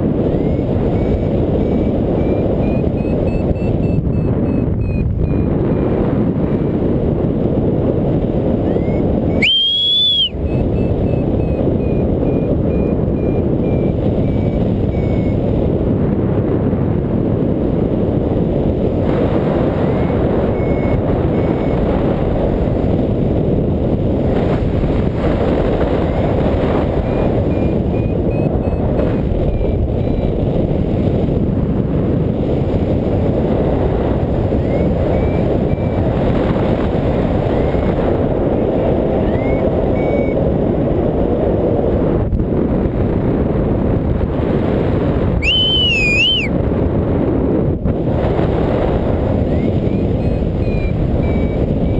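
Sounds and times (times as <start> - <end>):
variometer short beeps: 0.4 - 5.6, 8.7 - 15.4, 45.4 - 46.5
rising electronic tone: 45.4 - 46.5.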